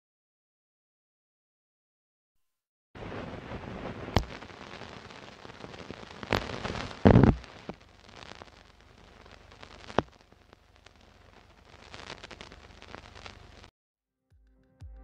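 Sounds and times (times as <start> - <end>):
old film crackle and hiss: 3.0 - 13.7
sharp pops and clicks: 3.2 - 13.7.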